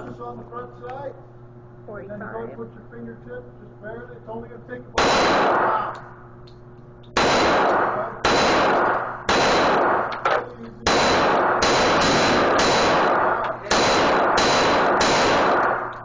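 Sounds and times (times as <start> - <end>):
gunshot echo: 5.0 - 6.0, 7.2 - 16.0
pistol shots: 5.0 - 6.1, 7.1 - 16.0.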